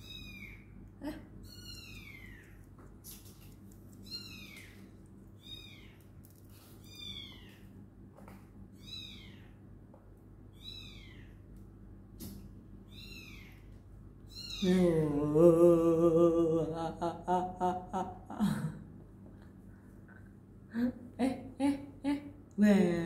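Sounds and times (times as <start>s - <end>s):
faint steady hum: 0.0s - 23.0s
animal high-pitched calls: 1.4s - 2.6s, 4.0s - 6.0s.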